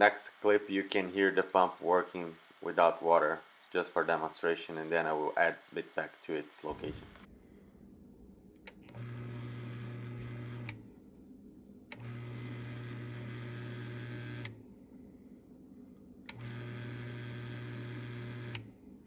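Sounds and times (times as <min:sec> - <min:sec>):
sump pump motor humming: 0:12.0 - 0:14.5, 0:16.3 - 0:18.7.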